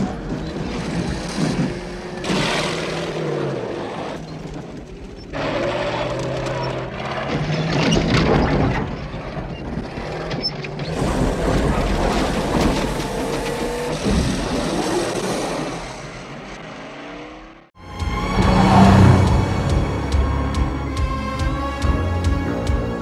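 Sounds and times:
tyres crunching on dirt road: 0.0 - 17.3
car engine under load: 0.0 - 23.0.

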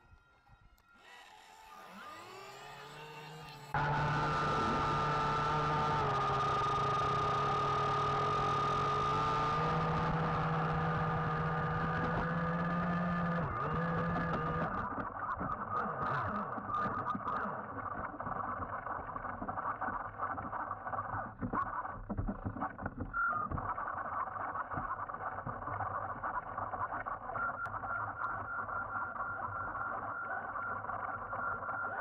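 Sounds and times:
high steady whine: 0.0 - 21.4
underwater motor and propeller whir: 0.8 - 32.0.

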